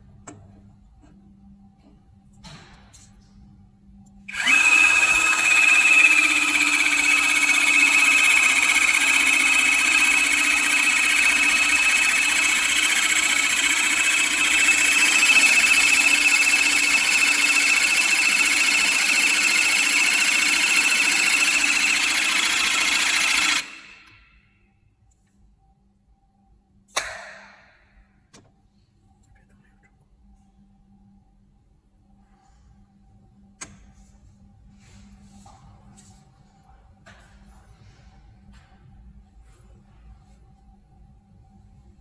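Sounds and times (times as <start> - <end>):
crimping tool motor whining: 4.3 - 24.1.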